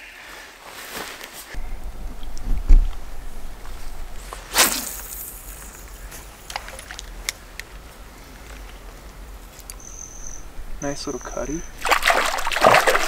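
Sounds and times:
water splash: 0:11.8 - 0:13.0.

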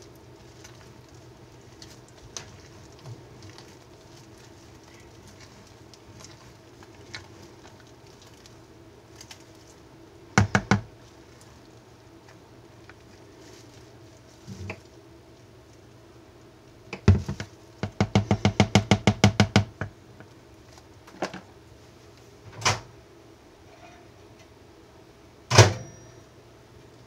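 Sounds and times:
spatula knocking plastic bowl: 0:10.4 - 0:10.9, 0:17.0 - 0:20.0.

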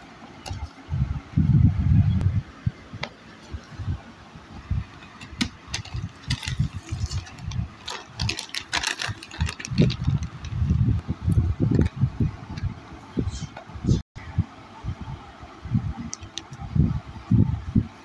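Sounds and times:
notebooks and plastic rustling: 0:05.0 - 0:10.7.

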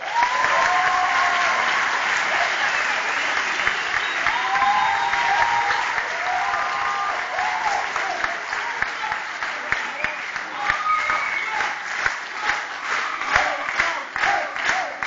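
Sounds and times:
audience clapping and cheering: 0:00.0 - 0:15.0
high-pitched shouts: 0:10.5 - 0:11.8.

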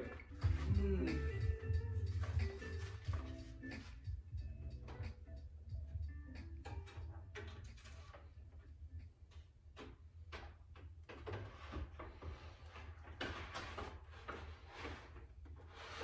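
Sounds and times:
steady low hum: 0:00.0 - 0:10.8
plastic knocks and scrapes: 0:06.6 - 0:08.6, 0:09.3 - 0:16.0.

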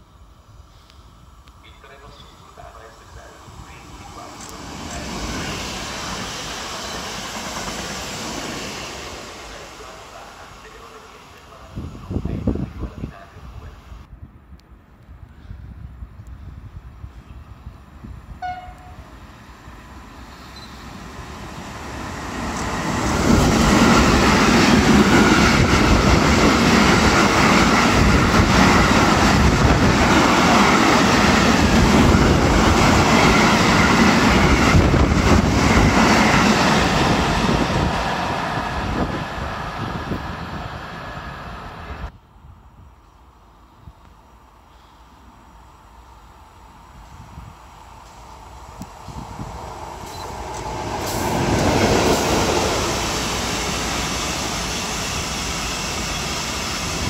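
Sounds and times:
freight train rushing past: 0:00.0 - 0:14.2, 0:15.4 - 0:57.0
train horn: 0:18.4 - 0:19.1.

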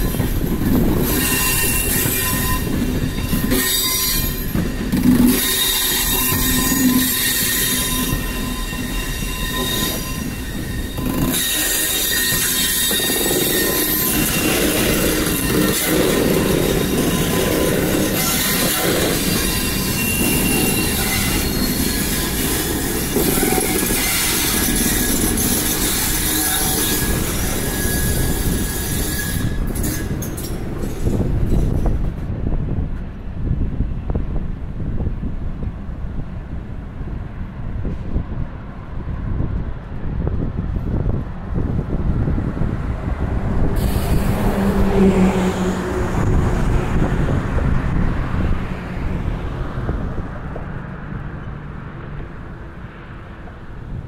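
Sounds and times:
passenger train rumbling past: 0:00.0 - 0:54.0
faint wheel squeal: 0:01.0 - 0:04.6, 0:05.3 - 0:31.8
car passing: 0:42.7 - 0:53.8.

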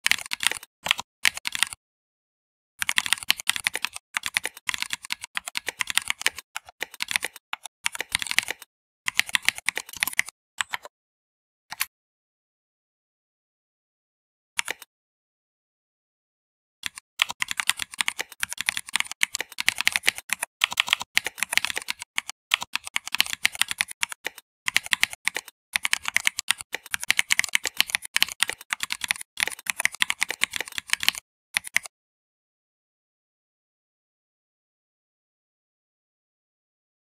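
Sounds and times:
fast typing on computer keyboard: 0:00.0 - 0:01.8, 0:02.8 - 0:10.9, 0:16.8 - 0:31.9.

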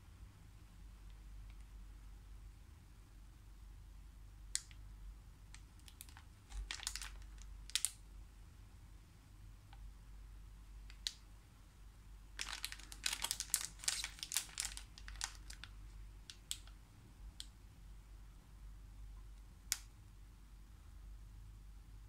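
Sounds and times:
plastic wrapper crinkling: 0:05.8 - 0:08.0, 0:12.4 - 0:16.7.

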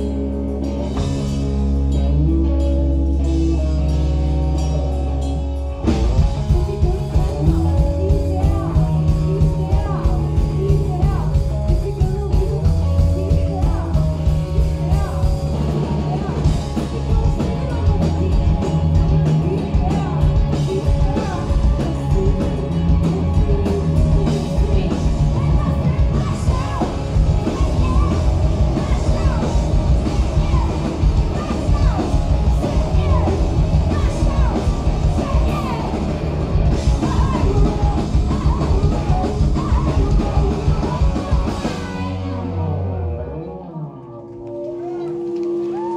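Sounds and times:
drum kit: 0:00.0 - 0:42.6
bass guitar: 0:00.0 - 0:45.9
electric guitar: 0:00.0 - 0:45.9
woman singing into microphone: 0:06.4 - 0:36.1, 0:36.7 - 0:42.9.

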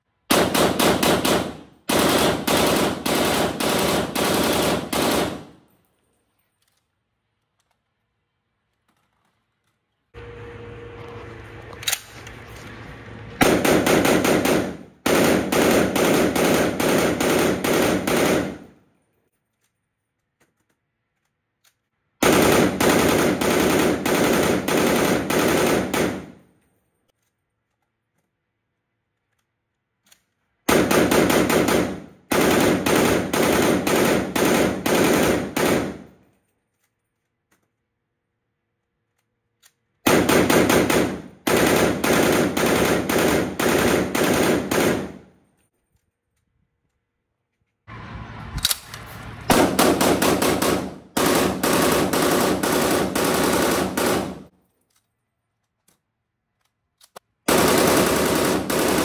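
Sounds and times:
automatic rifle bursts: 0:57.5 - 0:59.0.

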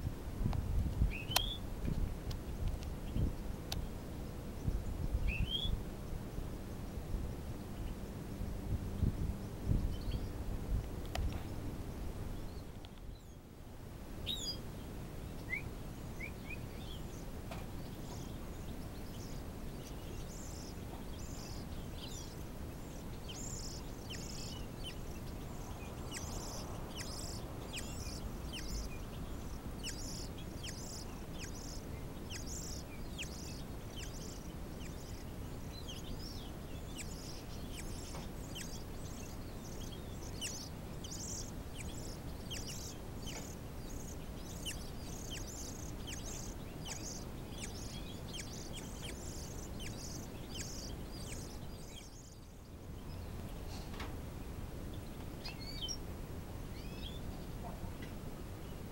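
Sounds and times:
low background rumble: 0:00.0 - 0:58.9
nestlings chirping: 0:01.0 - 0:13.4, 0:14.2 - 0:58.9.

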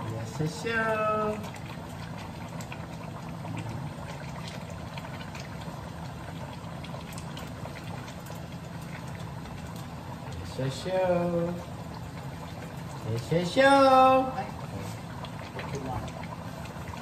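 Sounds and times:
range hood fan hum: 0:00.0 - 0:17.0
sauce simmering and crackling: 0:00.0 - 0:17.0.

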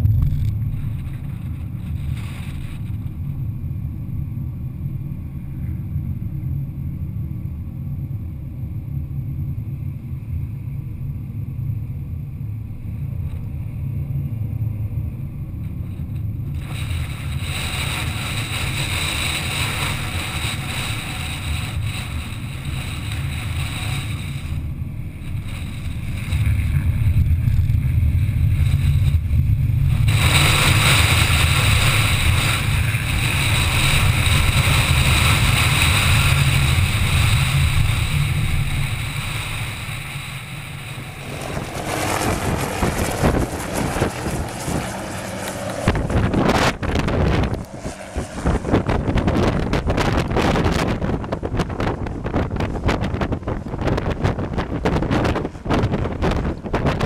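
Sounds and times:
road noise rumble: 0:00.0 - 0:57.0
wind buffeting microphone: 0:15.8 - 0:57.0
rushing hiss: 0:16.6 - 0:27.0, 0:29.8 - 0:49.2.

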